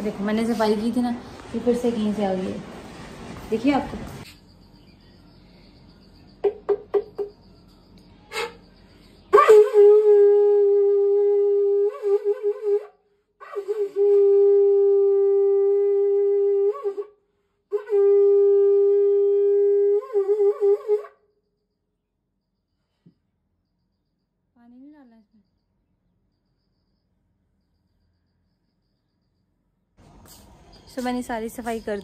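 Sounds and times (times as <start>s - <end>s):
conch shell blasts: 9.3s - 21.3s.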